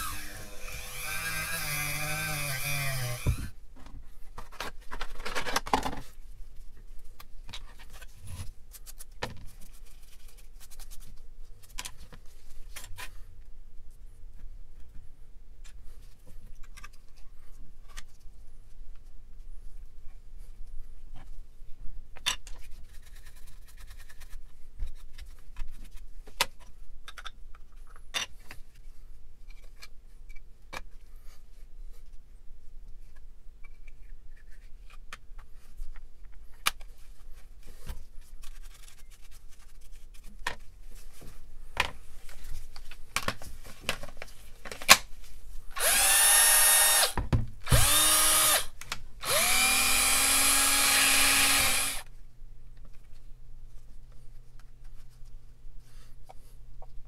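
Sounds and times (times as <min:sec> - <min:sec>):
cordless drill whining: 0:00.0 - 0:03.5, 0:45.8 - 0:52.0.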